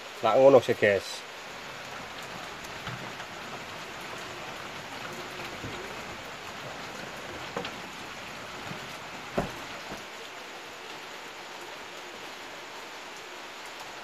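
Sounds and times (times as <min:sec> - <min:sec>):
light rain pattering: 0:00.0 - 0:14.0
small knock: 0:09.3 - 0:10.1.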